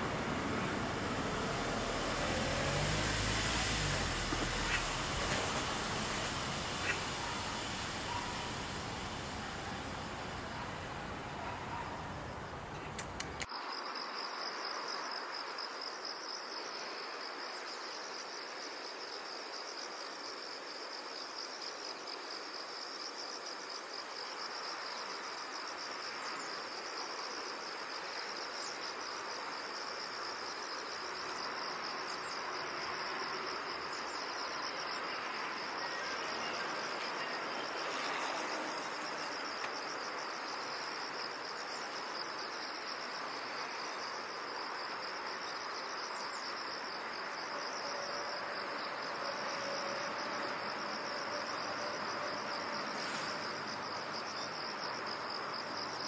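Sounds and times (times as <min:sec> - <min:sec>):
soft background rush: 0:00.0 - 0:13.5
insects chirping trill: 0:00.0 - 0:56.0.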